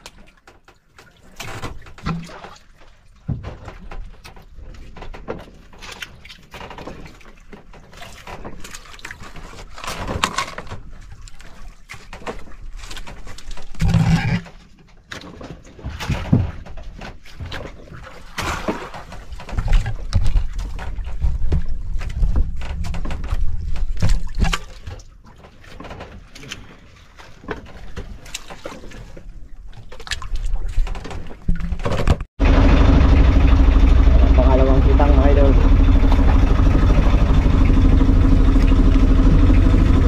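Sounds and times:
water noise: 16.7 - 40.0
boat engine running: 32.4 - 40.0.

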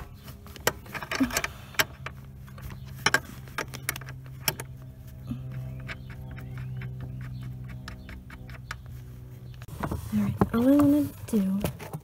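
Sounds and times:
steady low hum: 0.0 - 12.0
metal parts clicking and clinking: 0.6 - 2.2.

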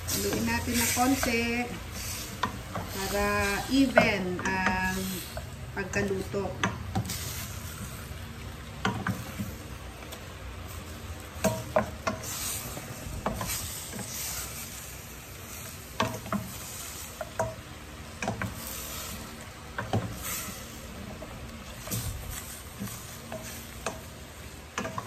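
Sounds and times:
meat sizzling in oil: 0.0 - 25.0.

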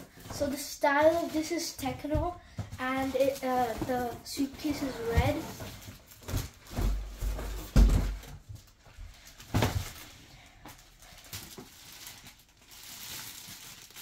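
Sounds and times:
plastic wrap rustling: 0.0 - 14.0.

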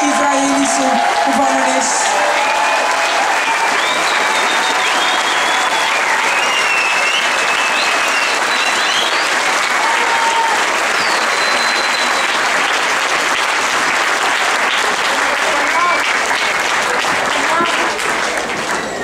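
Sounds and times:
crowd applauding: 0.0 - 19.0
high whistles: 3.6 - 9.6, 10.9 - 12.4.

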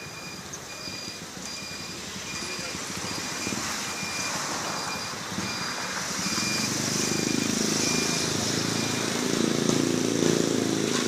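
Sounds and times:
vehicle engine approaching: 0.0 - 11.0.

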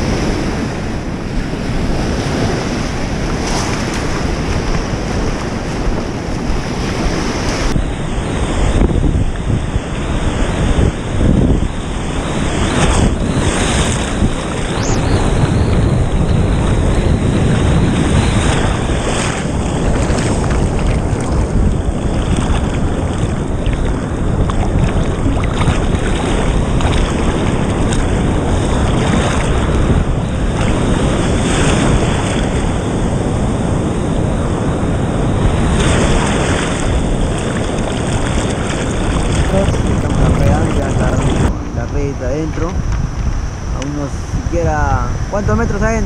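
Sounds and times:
surf breaking and foaming: 0.0 - 46.0
wind buffeting microphone: 0.0 - 46.0.

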